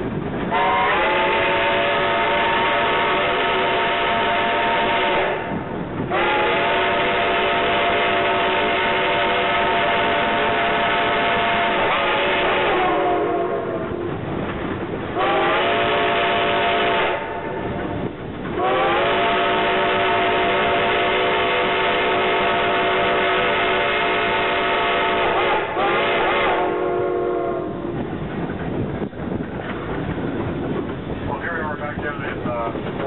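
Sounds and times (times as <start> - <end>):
train running noise: 0.0 - 33.0
steam locomotive whistle blasts: 0.5 - 14.1, 15.2 - 17.8, 18.6 - 28.0.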